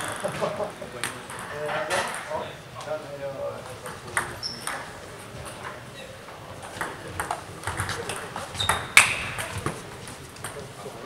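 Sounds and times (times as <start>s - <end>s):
table tennis ball clicking: 6.8s - 9.8s.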